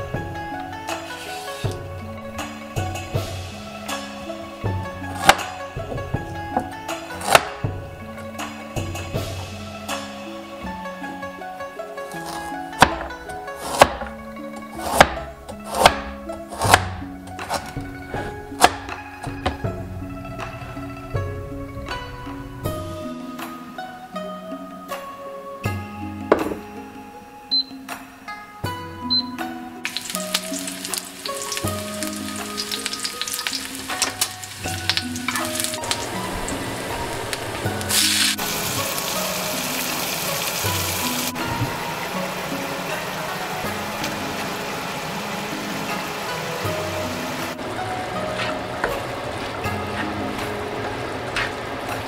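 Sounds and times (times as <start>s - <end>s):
instrumental music: 0.0s - 52.0s
cleaver chopping carrots: 5.1s - 5.6s, 7.2s - 7.6s, 12.2s - 19.6s
onions sizzling in hot oil: 29.8s - 41.3s.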